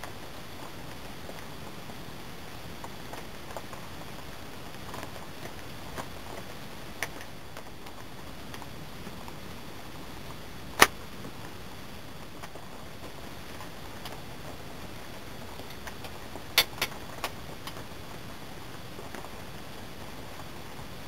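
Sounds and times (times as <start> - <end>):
steady hiss: 0.0 - 21.0.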